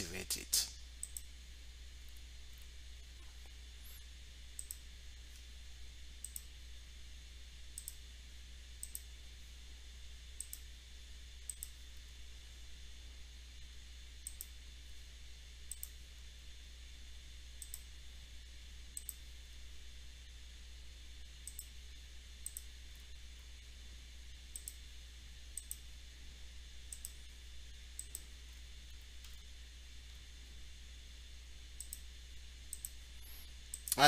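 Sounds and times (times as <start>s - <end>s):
steady low hum: 0.0s - 34.0s
computer mouse clicking: 1.0s - 1.3s, 4.6s - 5.4s, 6.2s - 6.5s, 7.8s - 8.0s, 8.8s - 9.1s, 10.4s - 10.7s, 11.5s - 11.8s, 14.2s - 14.6s, 15.7s - 16.0s, 17.6s - 17.9s, 18.9s - 19.2s, 21.4s - 21.8s, 22.4s - 22.7s, 24.5s - 24.8s, 25.5s - 25.8s, 26.9s - 27.2s, 28.0s - 28.3s, 31.8s - 32.1s, 32.7s - 34.0s.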